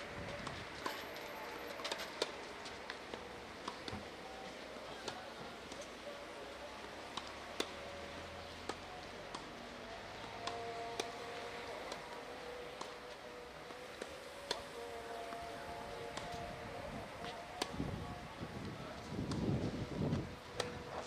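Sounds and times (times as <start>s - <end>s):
faint background voices: 0.0s - 21.0s
balls bouncing on clay court: 0.2s - 5.9s, 10.2s - 15.4s
tennis balls struck by rackets: 0.3s - 17.9s, 18.6s - 21.0s.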